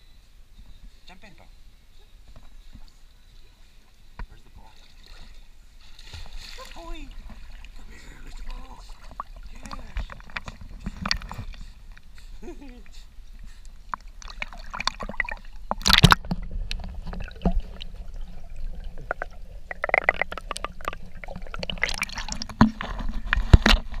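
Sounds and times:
water lapping and gurgling: 4.4 - 24.0
water splashing: 4.4 - 24.0.

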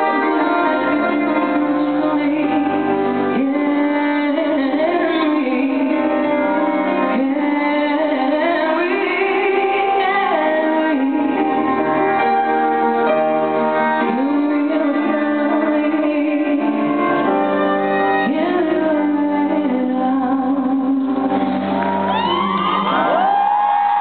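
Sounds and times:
woman singing a slow ballad: 0.0 - 12.3, 13.8 - 23.8
piano chords: 0.0 - 24.0
crowd cheering and whistling: 21.6 - 24.0.

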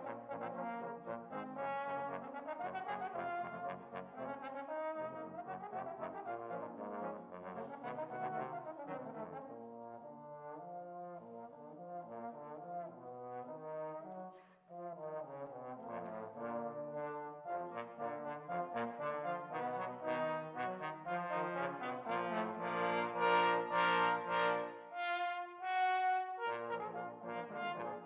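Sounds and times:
trombone quartet playing: 0.0 - 10.2, 11.1 - 28.0.

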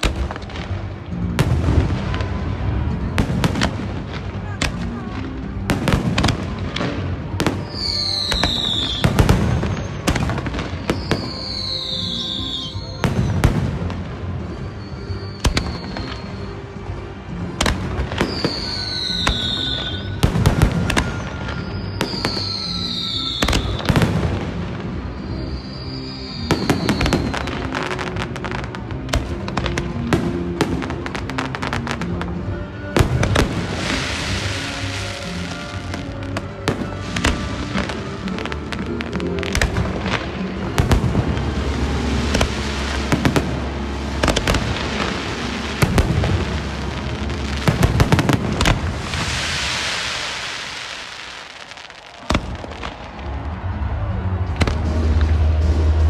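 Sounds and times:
music playing: 0.0 - 56.0
falling firework whistles: 7.5 - 16.6, 18.2 - 28.2, 33.4 - 37.8, 45.8 - 53.2
fireworks booming: 17.6 - 53.4.

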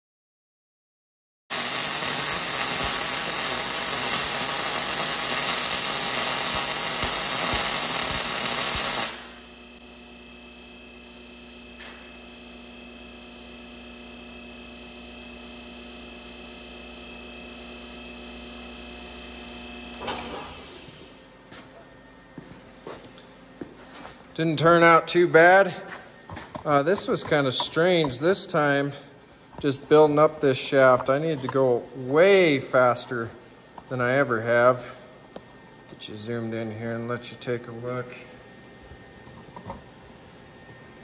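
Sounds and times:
welding arc crackling and hissing: 1.5 - 21.0
quiet machine hum: 1.5 - 41.0.

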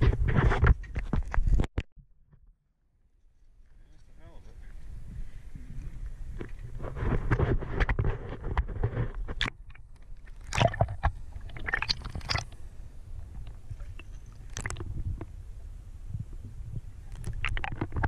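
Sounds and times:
low steady rumble: 2.8 - 18.0
water sloshing and gurgling: 4.9 - 18.0
muffled underwater splashes: 9.3 - 15.3.

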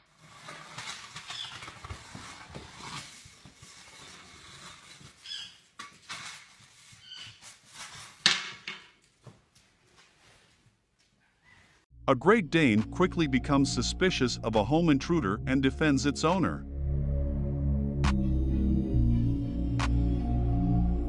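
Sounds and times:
broom scraping on wooden floor: 0.0 - 5.2
short high squeaks: 5.2 - 5.6.

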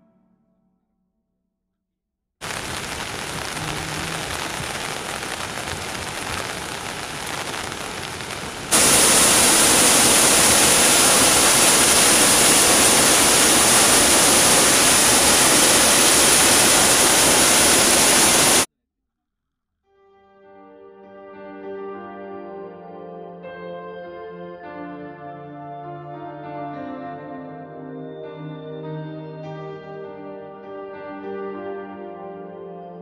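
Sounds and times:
waterfall rushing: 2.4 - 18.7.

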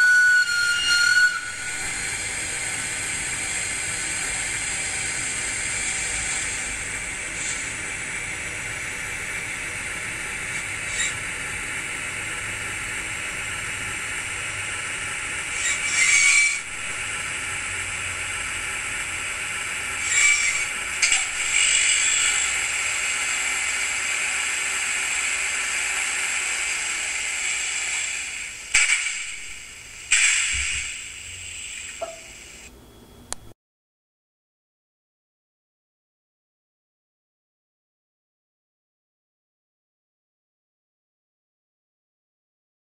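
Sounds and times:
model locomotive hiss and hum: 0.0 - 32.8.

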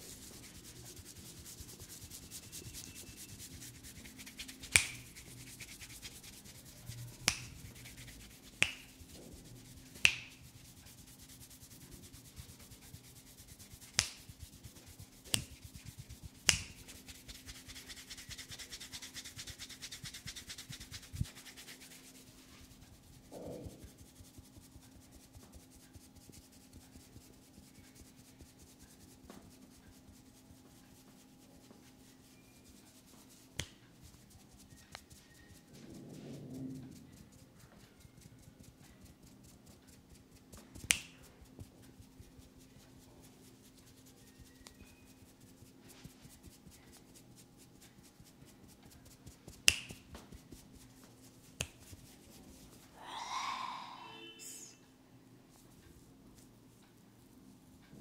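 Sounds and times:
fingers rubbing through hair: 0.0 - 54.8, 55.5 - 57.8
finger snaps: 4.4 - 5.2, 7.2 - 7.5, 8.6 - 8.9, 10.0 - 10.4, 13.9 - 14.3, 15.3 - 15.6, 16.5 - 17.0, 33.6 - 33.9, 40.8 - 41.2, 49.6 - 50.2, 51.6 - 51.9.

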